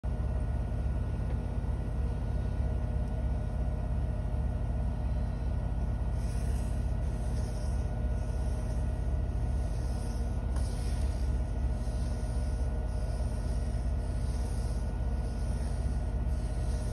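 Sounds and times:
washing machine spinning: 0.1s - 16.9s
pen scratching on paper: 6.1s - 16.9s.

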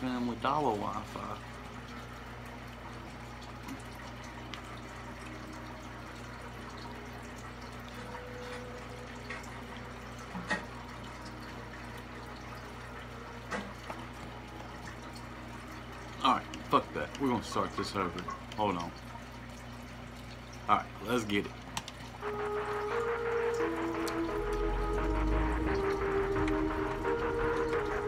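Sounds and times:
faint electrical hum: 0.0s - 28.0s.

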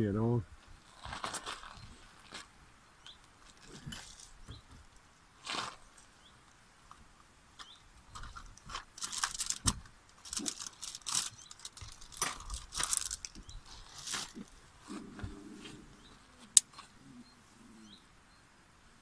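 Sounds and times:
plastic packaging crinkling: 8.7s - 14.5s.

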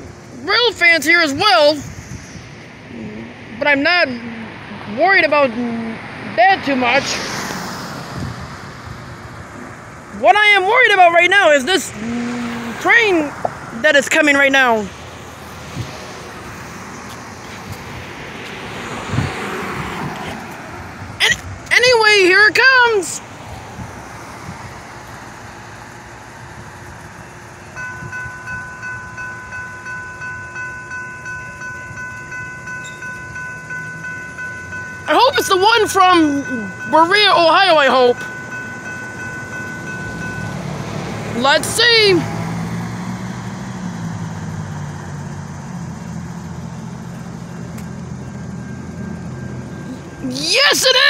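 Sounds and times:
railroad crossing warning bell: 0.0s - 5.5s, 8.6s - 15.0s, 21.0s - 23.2s, 24.8s - 51.0s
engine rumbling: 0.0s - 51.0s
steady outdoor noise: 0.0s - 51.0s.

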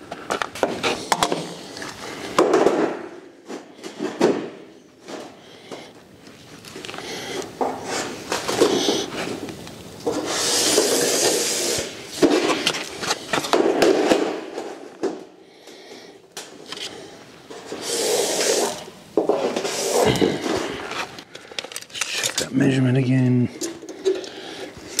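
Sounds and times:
scraping on corrugated steel sheet: 10.1s - 12.6s, 17.5s - 18.8s, 19.4s - 21.2s.

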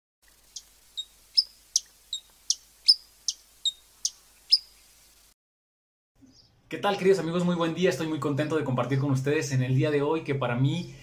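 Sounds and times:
bird chirping: 0.3s - 5.0s, 6.2s - 6.7s.

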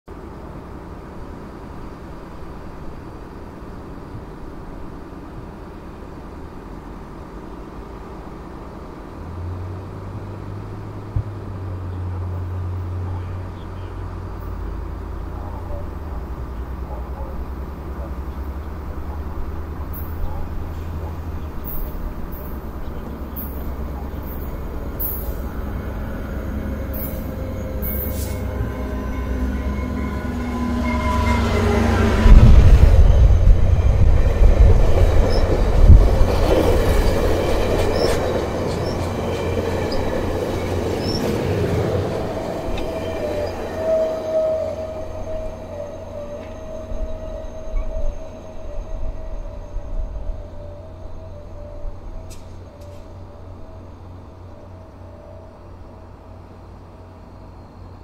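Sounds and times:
distant locomotive rumble: 0.1s - 58.0s
wheels clacking over rail joints: 13.1s - 30.6s, 32.0s - 47.9s
steady wheel squeal: 35.0s - 55.7s.

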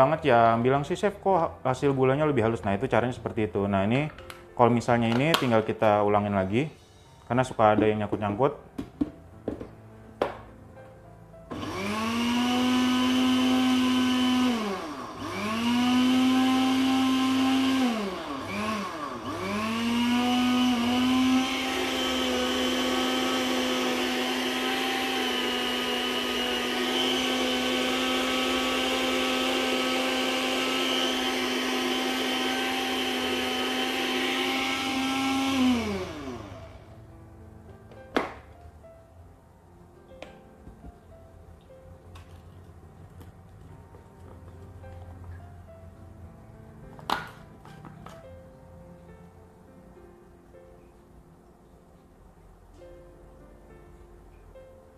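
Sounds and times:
blender motor grinding sugar: 11.5s - 36.9s.

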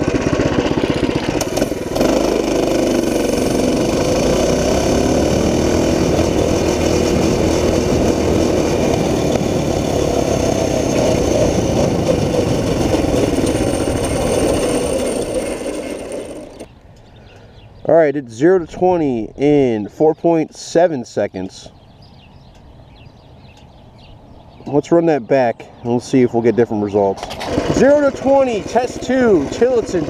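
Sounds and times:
minibike engine revving: 0.0s - 16.7s, 27.2s - 30.0s.

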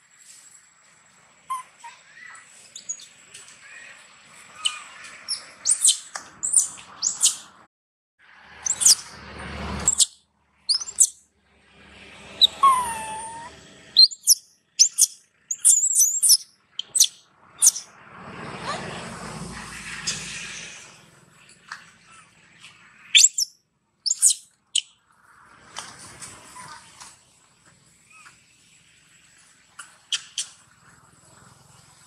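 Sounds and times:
young monkey squealing: 1.5s - 7.5s, 8.6s - 9.2s, 9.8s - 10.1s, 10.7s - 11.2s, 12.4s - 17.9s, 23.1s - 24.9s, 28.1s - 28.4s
lower wavering cry: 12.4s - 13.7s.

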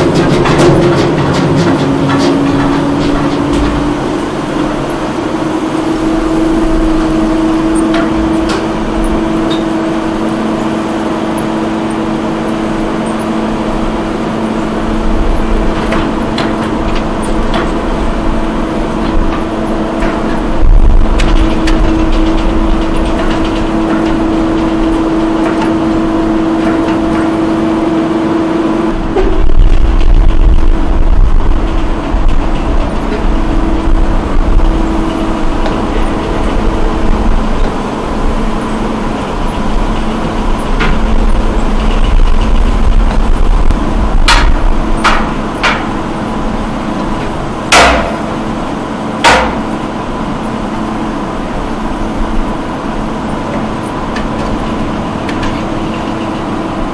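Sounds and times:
machinery motors humming: 0.0s - 56.9s
low rumble: 28.8s - 48.3s
sharp knocks: 47.7s - 48.4s, 49.2s - 49.8s.

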